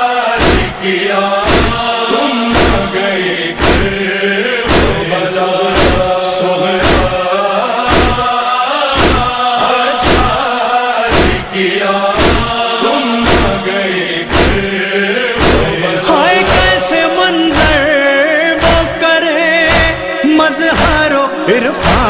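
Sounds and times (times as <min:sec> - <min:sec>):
male chorus chanting: 0:00.0 - 0:22.0
chest-beating thumps: 0:00.4 - 0:00.8, 0:01.4 - 0:01.9, 0:02.5 - 0:04.1, 0:04.7 - 0:05.1, 0:05.7 - 0:06.2, 0:06.8 - 0:07.2, 0:07.9 - 0:08.3, 0:09.0 - 0:09.4, 0:10.0 - 0:10.4, 0:11.1 - 0:11.5, 0:12.2 - 0:12.6, 0:13.2 - 0:14.8, 0:15.4 - 0:16.9, 0:17.5 - 0:17.9, 0:18.6 - 0:19.0, 0:19.6 - 0:20.1, 0:20.7 - 0:21.2, 0:21.8 - 0:22.0.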